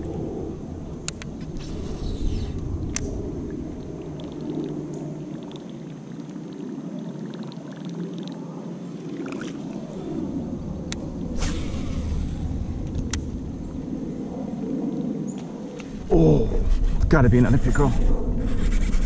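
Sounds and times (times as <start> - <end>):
low rumble: 0.0 - 5.4, 9.6 - 19.0
water sloshing around kayak: 3.5 - 12.8.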